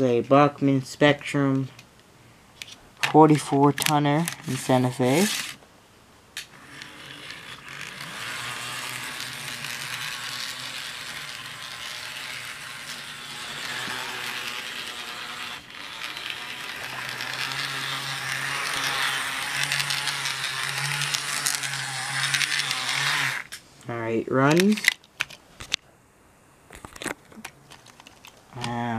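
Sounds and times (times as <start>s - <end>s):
model locomotive motor whirring: 6.4s - 23.6s.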